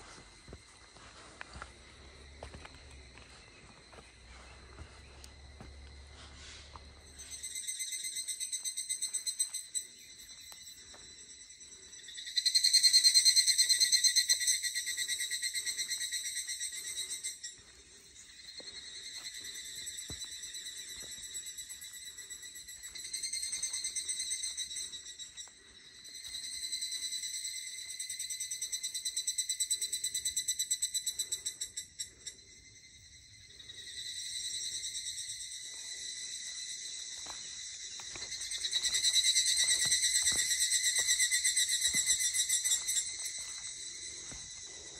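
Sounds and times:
cicadas buzzing: 0.0s - 44.9s.

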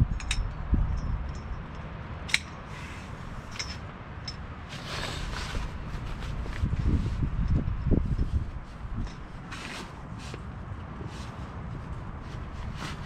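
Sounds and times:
fabric rustling: 4.7s - 7.3s, 8.4s - 13.0s.

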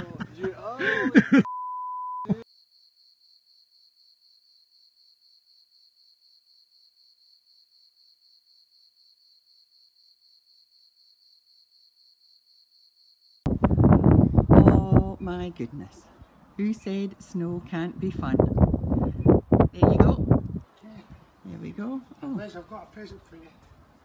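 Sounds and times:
censor beep: 1.5s - 2.4s.

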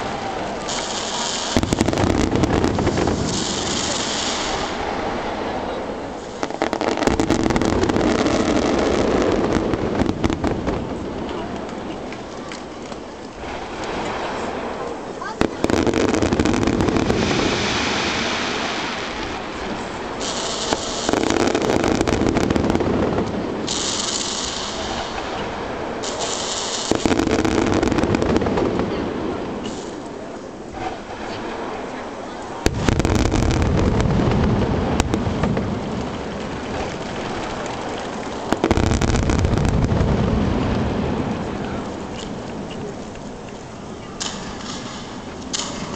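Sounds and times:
fireworks bursting and crackling: 0.0s - 45.9s
firework shells bursting: 20.1s - 28.8s, 44.2s - 45.9s.

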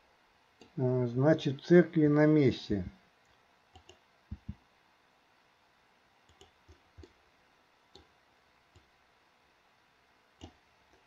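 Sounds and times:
mouse and keyboard clicks: 3.8s - 4.6s, 6.3s - 7.2s.

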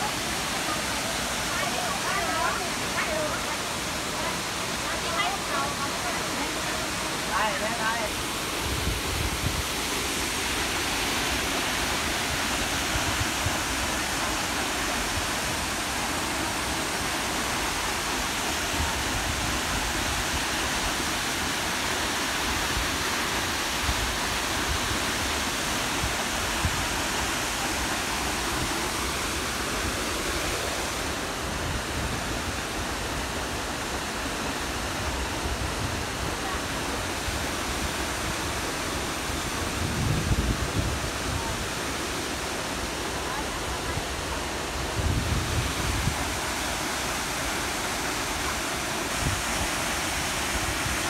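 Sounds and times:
waterfall rushing: 0.0s - 51.0s.

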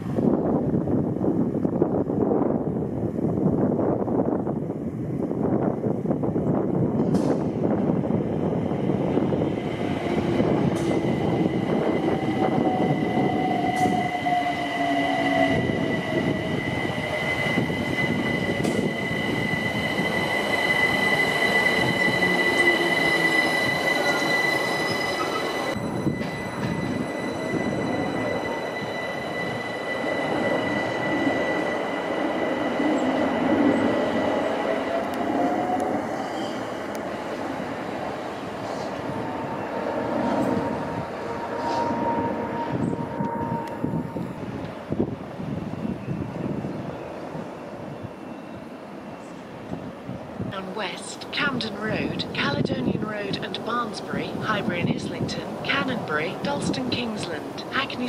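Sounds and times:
electric train slowing: 5.2s - 49.9s
high-pitched wheel squeal: 11.8s - 32.1s.

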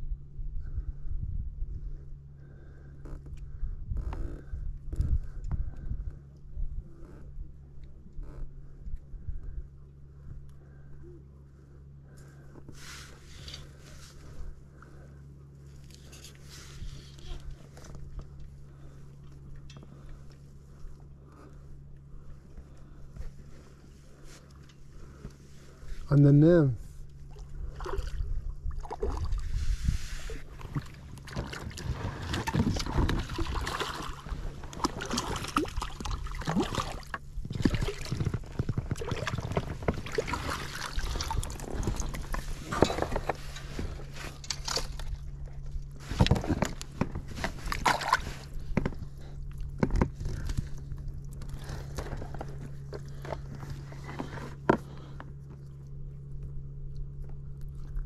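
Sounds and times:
water splashing and sloshing: 27.0s - 55.0s.

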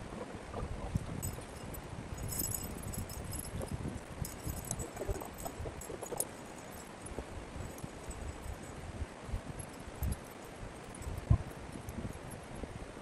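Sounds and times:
wind rumble on microphone: 0.0s - 13.0s
guy ropes rustling: 1.0s - 8.8s
metal tent stakes clinking: 1.0s - 8.8s.

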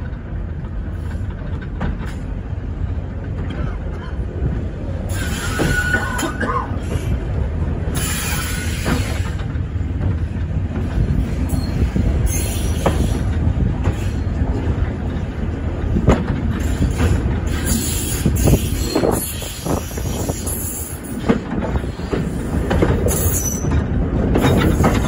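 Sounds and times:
train rumbling on track: 0.0s - 25.0s
train wheels knocking on rails: 12.3s - 17.9s.

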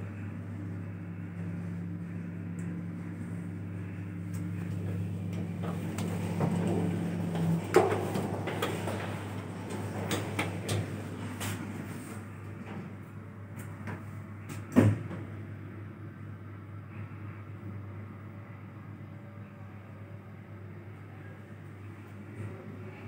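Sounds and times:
elevator hum: 0.0s - 23.0s
elevator stopping clack: 4.4s - 12.9s.

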